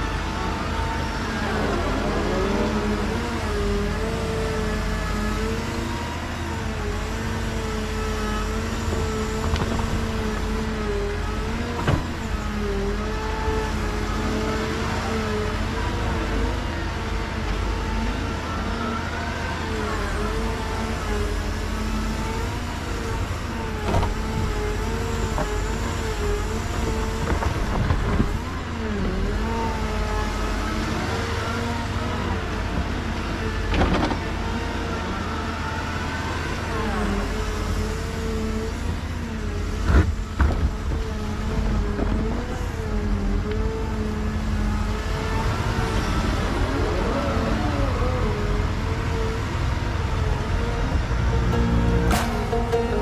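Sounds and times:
excavator engine and hydraulics: 0.0s - 53.0s
sharp knocks: 51.9s - 53.0s.

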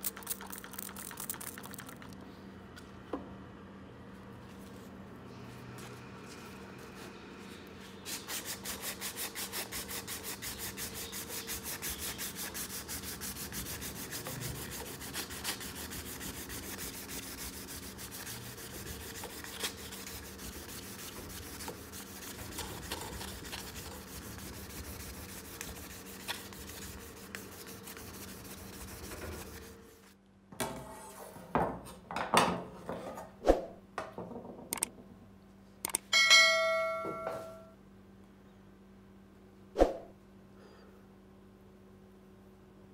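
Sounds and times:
tape peeling from roll: 13.6s - 29.7s.

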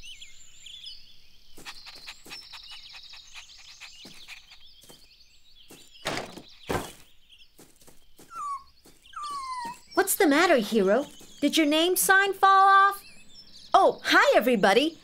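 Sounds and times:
birds chirping: 0.0s - 15.0s
wooden sign thudding: 6.0s - 7.0s.

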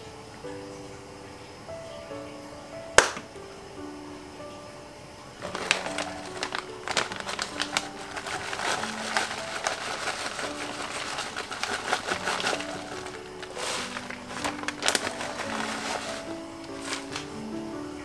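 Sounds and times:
background music with simple melody: 0.0s - 18.0s
plastic bag crinkling: 5.4s - 17.6s
shredded cheese pouring into saucepan: 5.4s - 17.6s.

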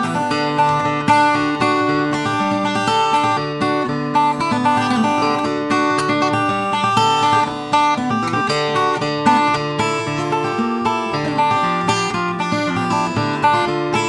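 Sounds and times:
acoustic guitar plucked notes: 0.0s - 14.0s.

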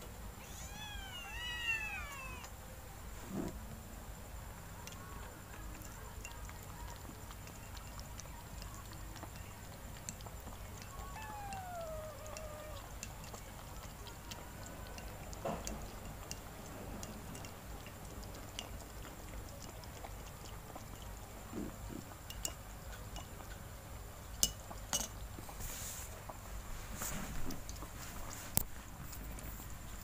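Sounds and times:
kitten meowing: 0.4s - 2.5s, 11.0s - 12.9s
kittens lapping milk: 4.4s - 30.0s
spoon clinking on saucer: 17.3s - 17.6s, 24.4s - 25.2s.

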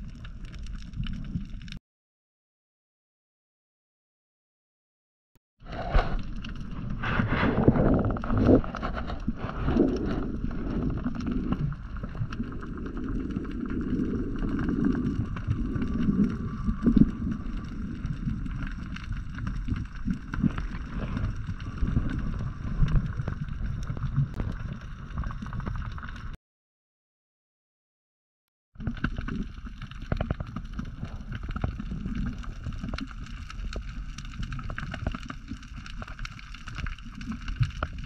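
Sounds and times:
faint crackling clicks: 0.0s - 1.8s, 8.1s - 26.4s, 28.8s - 38.0s
underwater rumble of moving water: 0.0s - 1.8s, 5.6s - 26.4s, 28.8s - 38.0s.

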